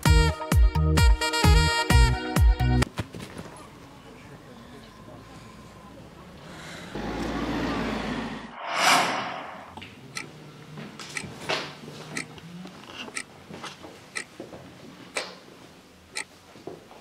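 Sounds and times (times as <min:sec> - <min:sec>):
rushing whoosh: 0:08.5 - 0:09.8.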